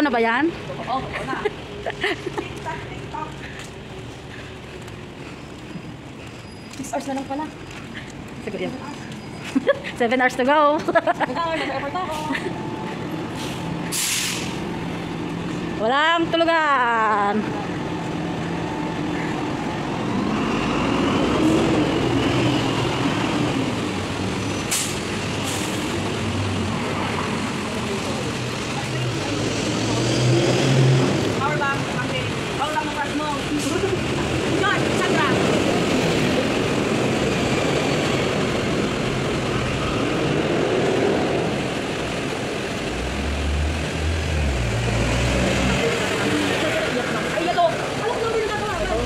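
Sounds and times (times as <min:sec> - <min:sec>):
bus driving past: 0:00.0 - 0:49.0
city street noise: 0:00.0 - 0:49.0
short sharp air hisses: 0:13.4 - 0:14.6.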